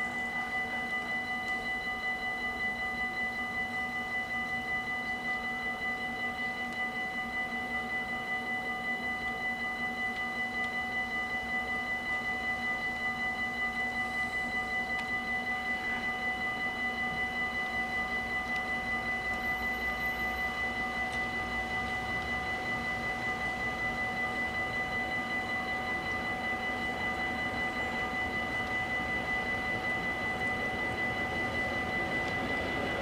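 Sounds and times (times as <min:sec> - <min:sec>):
level crossing warning bells: 0:00.0 - 0:33.0.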